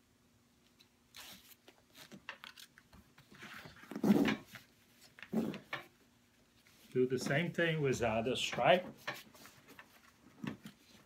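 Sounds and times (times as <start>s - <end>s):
fabric straps rustling and scraping: 1.1s - 5.9s.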